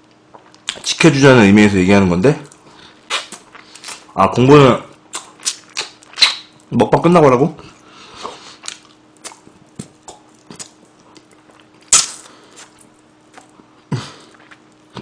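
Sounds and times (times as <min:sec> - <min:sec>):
chewing and lip-smacking: 0:02.5 - 0:04.1, 0:05.1 - 0:06.7, 0:08.2 - 0:15.0.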